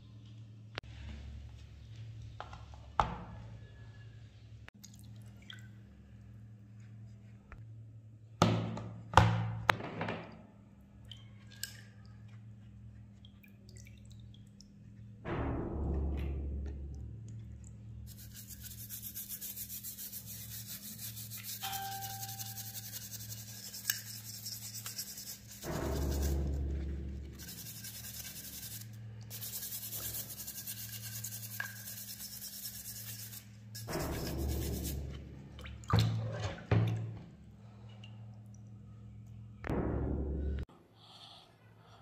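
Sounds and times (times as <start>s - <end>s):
wire brush scrubbing steel: 18.1s - 35.2s.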